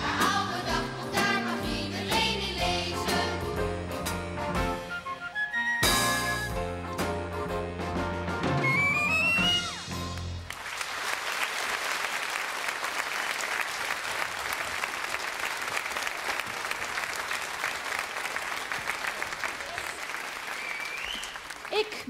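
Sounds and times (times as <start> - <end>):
audience clapping: 10.0 - 22.0.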